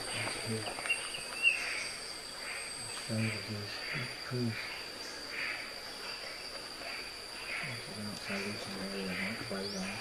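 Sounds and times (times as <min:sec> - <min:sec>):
insects calling: 0:00.0 - 0:10.0.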